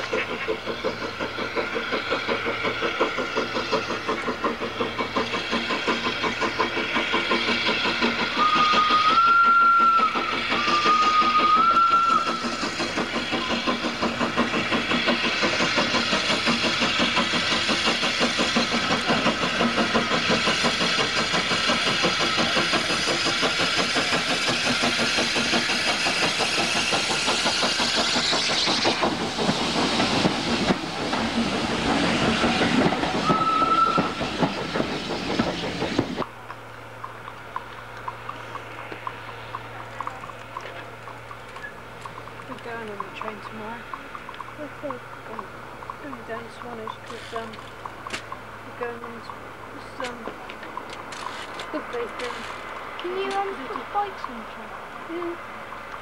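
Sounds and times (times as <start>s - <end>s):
steam locomotive exhaust beats: 0.0s - 56.0s
steam whistle blasts: 8.4s - 12.3s, 33.2s - 34.2s.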